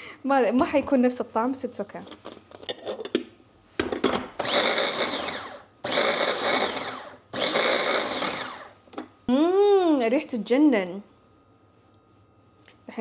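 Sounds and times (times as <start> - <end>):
electric food chopper grinding: 4.4 - 8.7.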